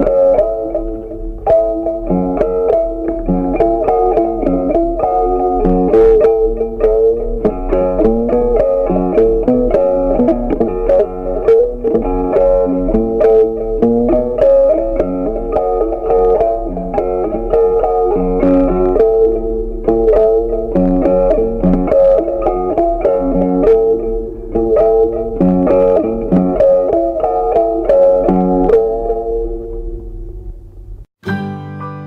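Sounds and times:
plucked guitar music: 0:00.0 - 0:32.0.

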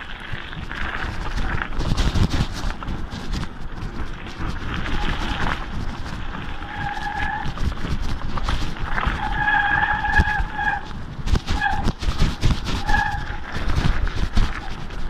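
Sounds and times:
bike rattling: 0:00.0 - 0:15.0
bike tyre rumble on gravel: 0:00.0 - 0:15.0
wind on microphone: 0:00.0 - 0:15.0
bike brakes squealing: 0:06.5 - 0:07.6, 0:09.0 - 0:10.9, 0:11.5 - 0:11.9, 0:12.7 - 0:13.5.

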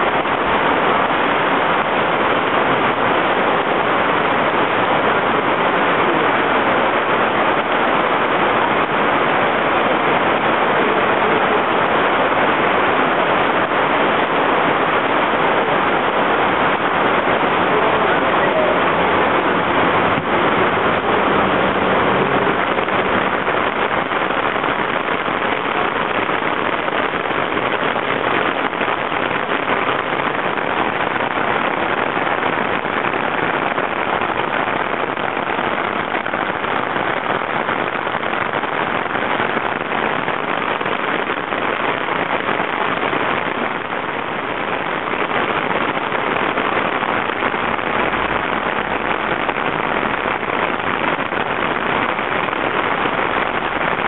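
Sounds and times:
heavy rain on pavement: 0:00.0 - 0:54.0
bus engine rumble: 0:00.2 - 0:26.8.

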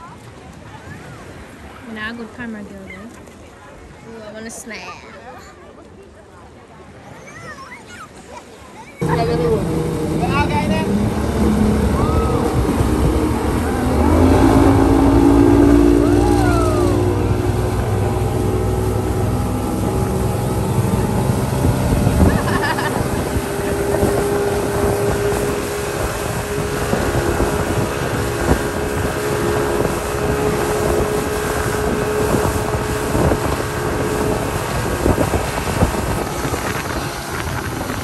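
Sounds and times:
churning wake rushing: 0:00.0 - 0:38.0
outboard motor running: 0:09.0 - 0:38.0
wind on microphone: 0:09.0 - 0:38.0.

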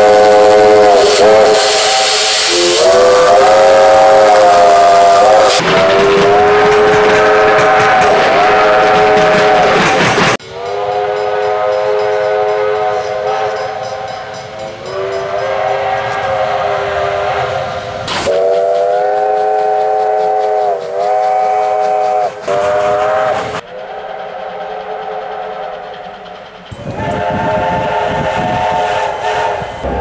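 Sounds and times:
steam whistle chord blasts: 0:00.0 - 0:09.8, 0:10.4 - 0:30.0.

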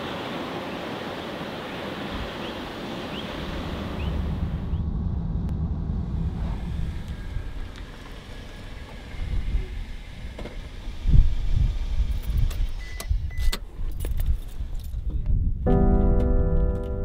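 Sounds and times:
car engine rumbling: 0:03.1 - 0:12.9.

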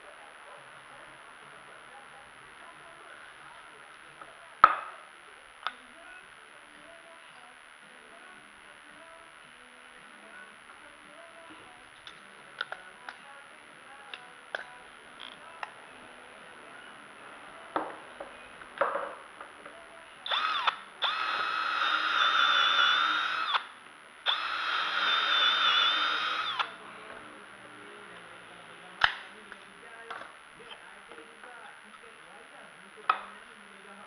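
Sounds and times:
cordless drill whining: 0:20.3 - 0:23.7, 0:24.3 - 0:26.7.

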